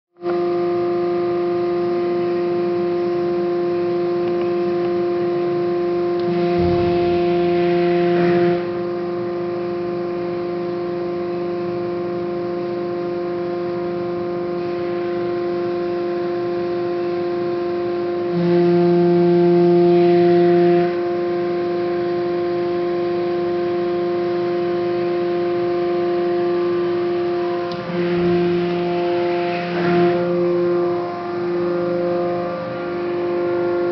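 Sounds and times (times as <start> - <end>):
hydraulic press humming: 2.2 - 10.0, 24.9 - 33.9.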